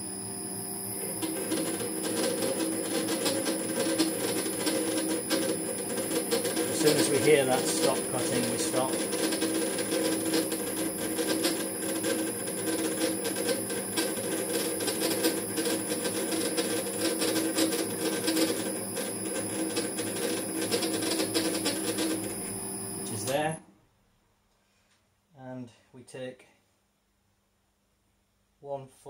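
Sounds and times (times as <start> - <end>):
lathe gear whine: 0.0 - 23.6
fast uneven cutting ticks: 1.0 - 22.3.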